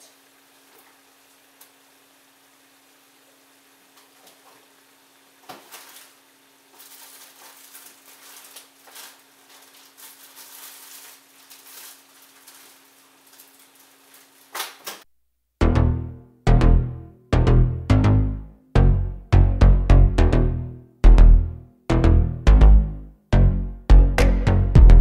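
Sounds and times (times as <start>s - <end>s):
music with a beat: 15.6s - 25.0s.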